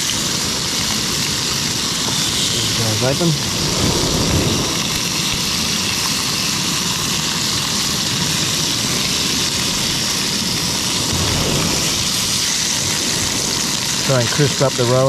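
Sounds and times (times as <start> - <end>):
fish frying in oil: 0.0 - 15.0
low rumble: 2.5 - 6.5, 10.6 - 14.2.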